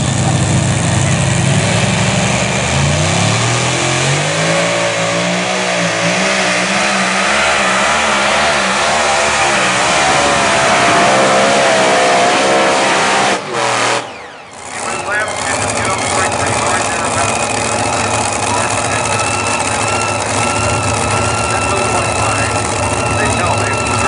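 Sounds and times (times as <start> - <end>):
tractor engine running under load: 0.0 - 3.8, 14.1 - 24.0.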